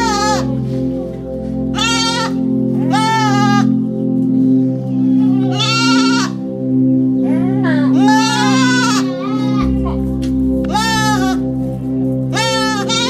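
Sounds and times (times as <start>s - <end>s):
goats bleating: 0.0s - 0.7s, 1.7s - 3.9s, 4.8s - 6.5s, 7.3s - 10.0s, 10.6s - 11.6s, 12.3s - 13.0s
background music: 0.0s - 13.0s.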